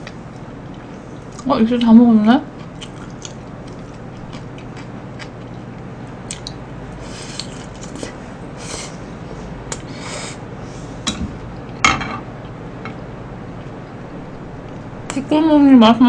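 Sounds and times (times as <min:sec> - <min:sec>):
chewing: 0:02.5 - 0:06.6.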